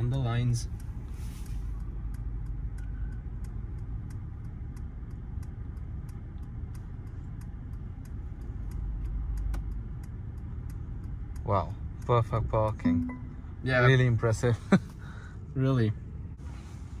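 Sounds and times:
turn signal ticking: 0.0s - 16.4s
car rumbling while creeping: 0.0s - 17.0s
short faint beep: 12.8s - 13.5s.

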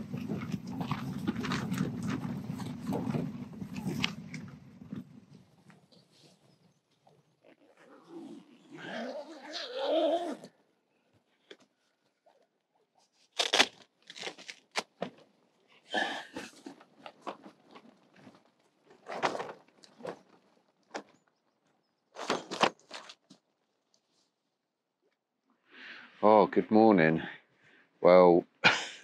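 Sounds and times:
tent zip unzipping: 7.5s - 10.5s.

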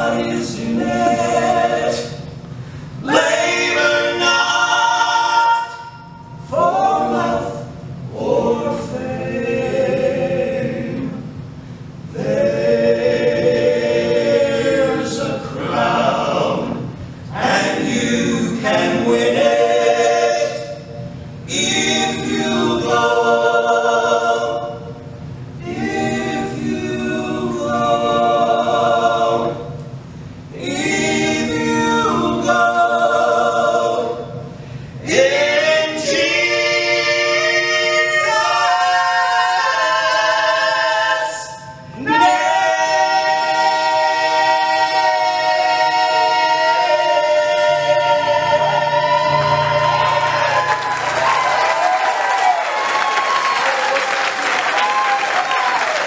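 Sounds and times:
men singing a cappella: 12.2s - 20.8s, 35.0s - 50.6s.

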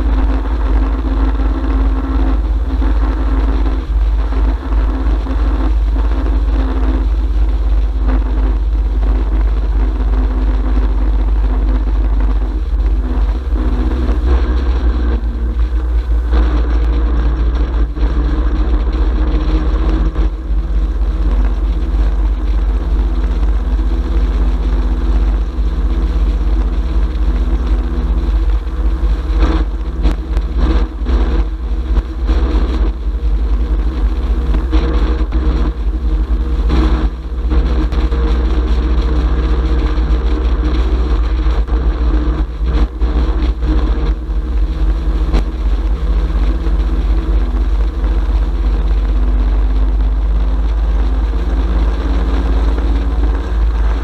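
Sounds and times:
motorcycle engine running: 0.0s - 54.0s
wind rumble on microphone: 0.0s - 54.0s.

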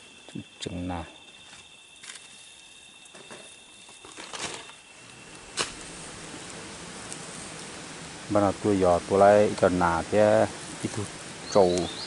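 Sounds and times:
high insect drone: 0.0s - 12.0s
crackles and rustles: 1.2s - 12.0s
sharp snap: 5.5s - 5.8s.

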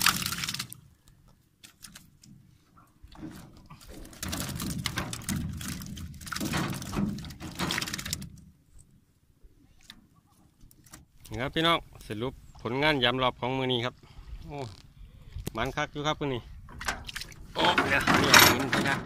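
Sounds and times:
water splashing and pattering: 0.0s - 8.9s, 16.7s - 19.0s.

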